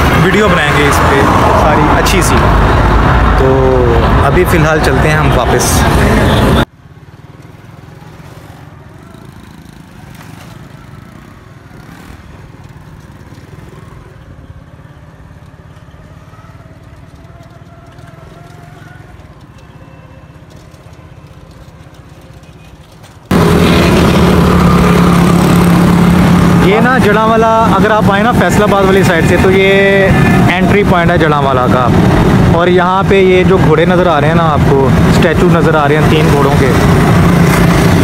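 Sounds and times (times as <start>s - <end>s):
distant traffic hum: 0.0s - 38.0s
road and wind noise: 0.0s - 38.0s
motor vehicle engine drone: 23.0s - 38.0s.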